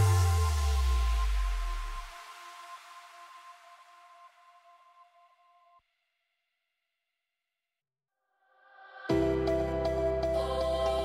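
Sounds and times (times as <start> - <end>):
background music: 0.0 - 5.3, 9.1 - 11.0.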